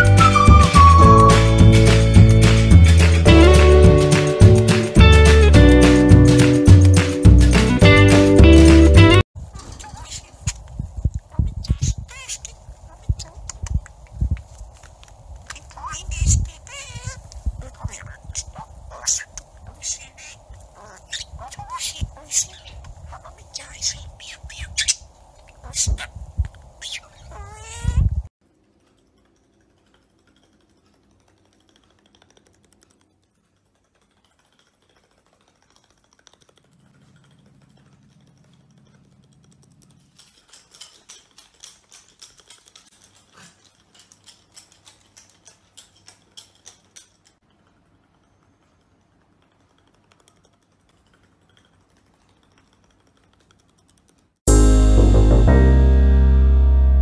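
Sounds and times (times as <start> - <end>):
budgerigar chirping: 0.0 - 1.6
music: 0.0 - 9.2, 54.5 - 57.0
dog claws clicking on wooden floor: 28.9 - 47.5.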